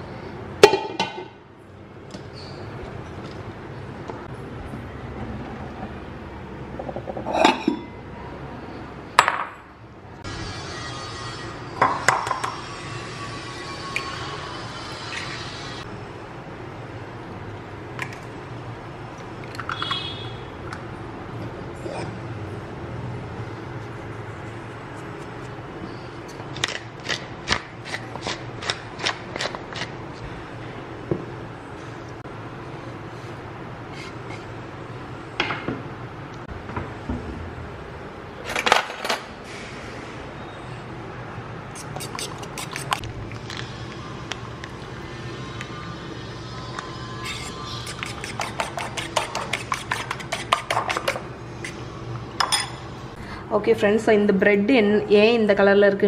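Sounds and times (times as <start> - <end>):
low background hum: 0.0 - 56.0
fork beating eggs in a bowl: 41.8 - 43.0, 47.2 - 51.8.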